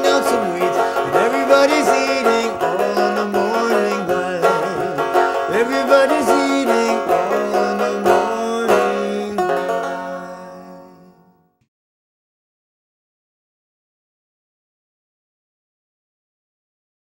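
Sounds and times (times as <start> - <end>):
banjo picking a melody: 0.0 - 11.5.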